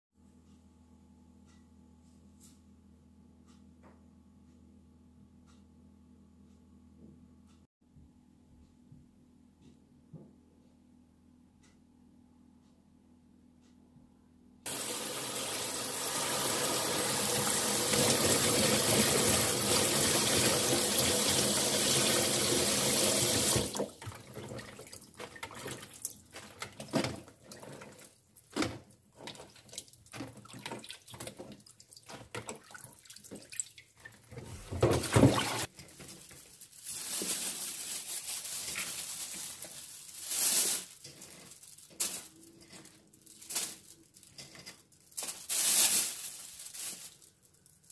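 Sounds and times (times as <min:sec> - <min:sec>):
water splashing and dripping: 0:29.2 - 0:35.7.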